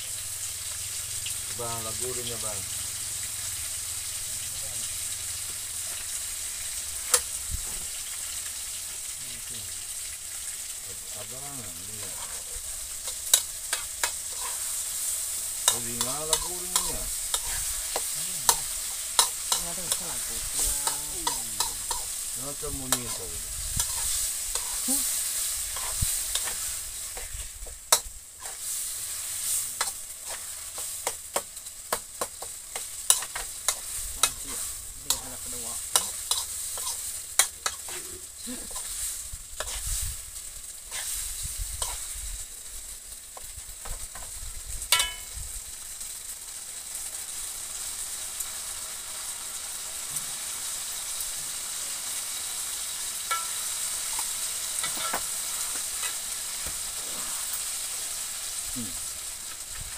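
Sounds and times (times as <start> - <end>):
sauce sizzling in oil: 0.0 - 59.9
metal spatula scraping wok: 1.3 - 9.1, 11.8 - 42.5, 43.4 - 45.4, 52.8 - 58.1.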